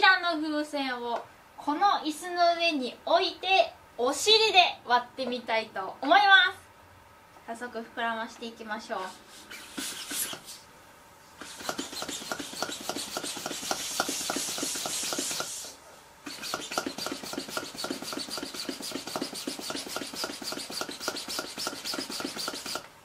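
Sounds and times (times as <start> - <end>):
hand pump rasping air: 9.2 - 10.6, 11.4 - 22.9.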